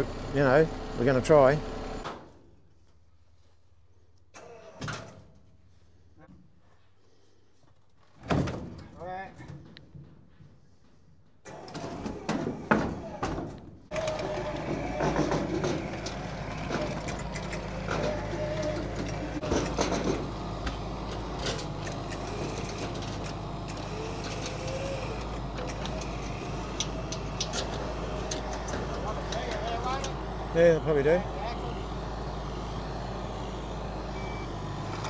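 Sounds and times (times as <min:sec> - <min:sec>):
low engine drone: 0:13.9 - 0:35.0.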